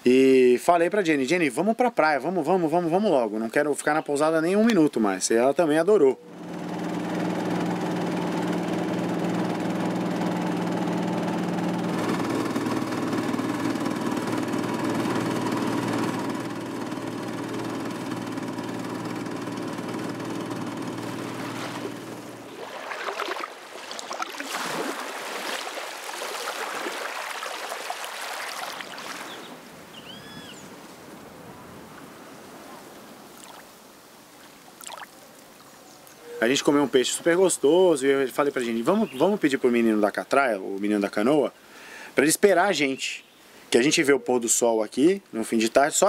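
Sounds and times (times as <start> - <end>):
boat engine running: 6.1 - 29.4
small waves lapping on shore: 18.3 - 35.8.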